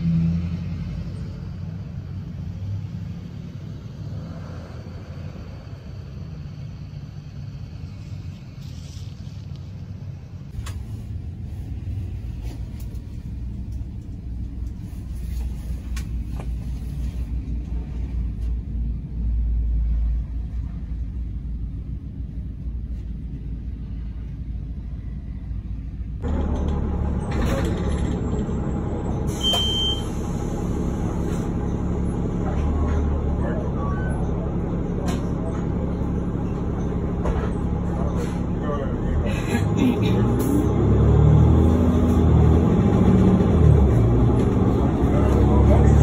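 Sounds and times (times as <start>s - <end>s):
vehicle engine rumble from inside: 0.0s - 46.0s
short high beep: 29.4s - 30.1s.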